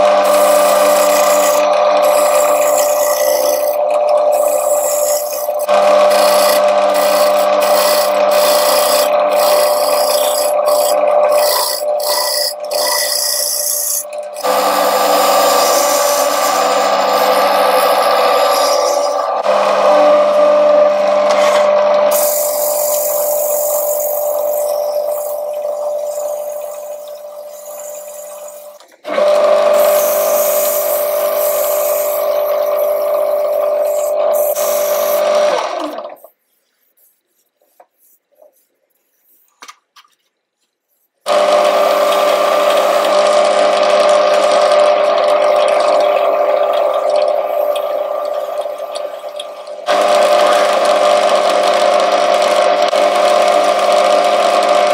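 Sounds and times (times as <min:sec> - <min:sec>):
wood lathe motor hum: 0:00.0 - 0:36.2, 0:41.3 - 0:54.9.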